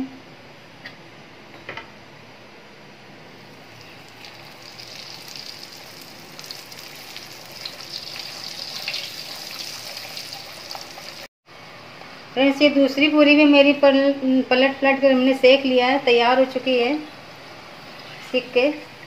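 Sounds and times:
oil sizzling with pops: 3.6s - 11.3s.

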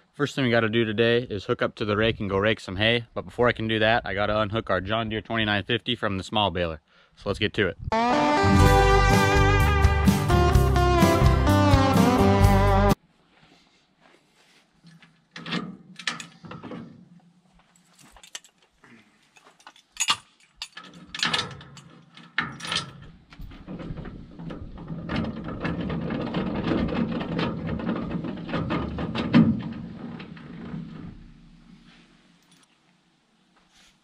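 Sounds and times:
metal clanks and rattles: 15.3s - 17.2s, 19.4s - 31.9s.

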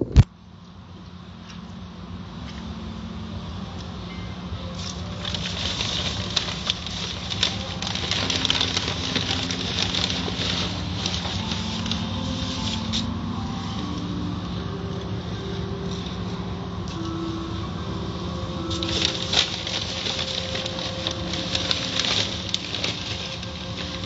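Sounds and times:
car wash machinery humming: 0.3s - 24.0s
cloth strips slapping windshield: 4.7s - 13.3s, 18.6s - 24.0s
water and foam spraying on glass: 4.7s - 13.4s.

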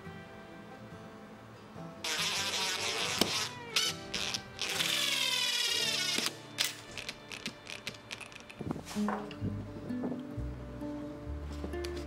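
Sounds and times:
background music: 0.0s - 12.0s
power drill driving screws into wood: 2.0s - 6.4s.

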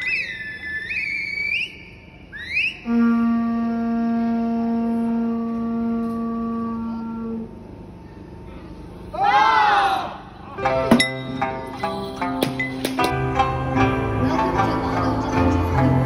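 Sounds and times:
high whistle-like tone: 0.0s - 3.3s
conch shell horn low note: 2.9s - 7.6s.

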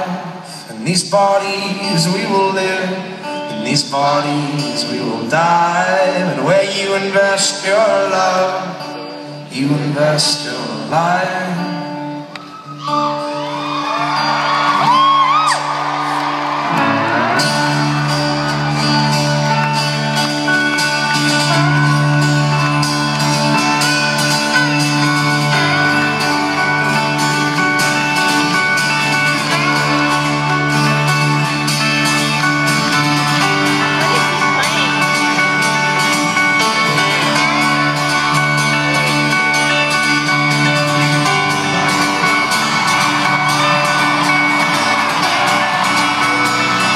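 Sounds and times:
live folk-rock band playing: 0.0s - 46.9s
crowd shouting and whooping: 12.3s - 46.9s.

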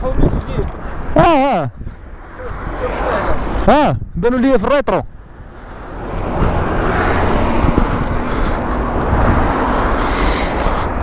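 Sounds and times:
wind rumble on microphone: 0.0s - 4.2s, 5.1s - 11.0s
street traffic: 0.0s - 11.0s.

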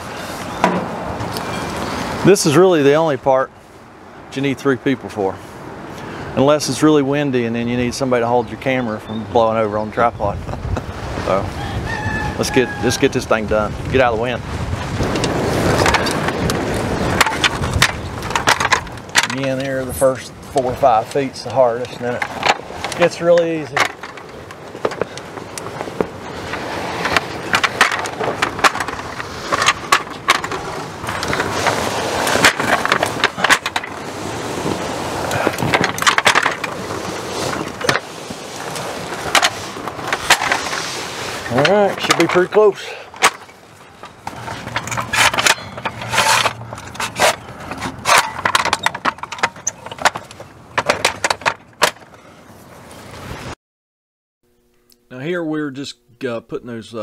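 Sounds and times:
scraping rustles: 14.5s - 53.6s
metal clicks and clanks: 17.2s - 19.7s, 43.2s - 52.1s
fabric scraping through rail: 36.7s - 42.3s.

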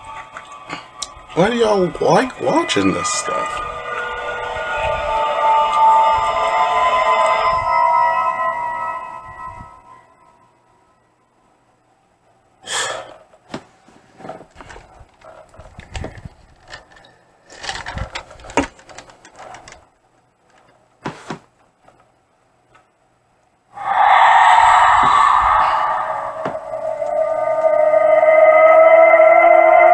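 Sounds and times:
horror soundtrack chord: 0.7s - 11.0s, 23.8s - 29.9s.

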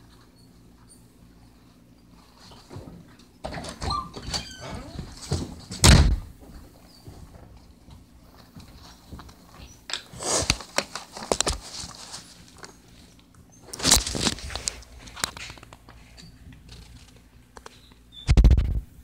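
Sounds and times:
rustling and clicking handling: 7.0s - 18.1s.

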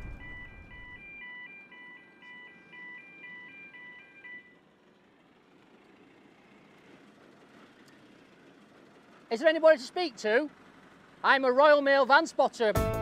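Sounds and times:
electronic beeping melody: 0.0s - 4.6s
lorry engine rumble: 0.0s - 13.0s.

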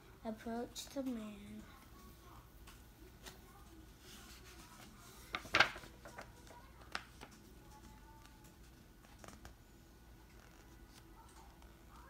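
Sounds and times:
paper page turning: 4.1s - 7.4s.

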